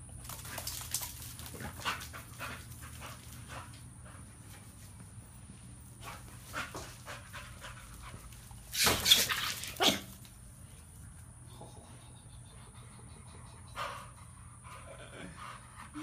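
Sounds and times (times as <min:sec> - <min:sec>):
dogs scuffling: 0:00.1 - 0:03.8, 0:06.0 - 0:11.2
dogs panting: 0:00.3 - 0:08.7, 0:11.3 - 0:16.0
dog bark-like outburst: 0:09.8 - 0:10.1.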